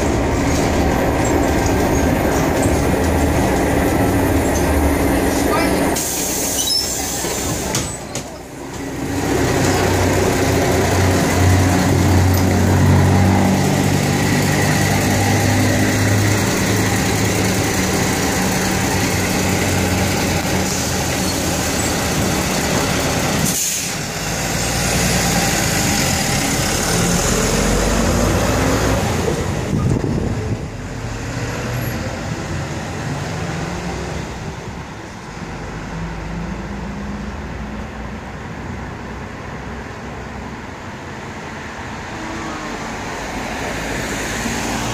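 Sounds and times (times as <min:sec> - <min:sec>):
bus diesel engine: 0:00.0 - 0:44.9
air brake hiss: 0:06.0 - 0:07.7, 0:23.4 - 0:24.0.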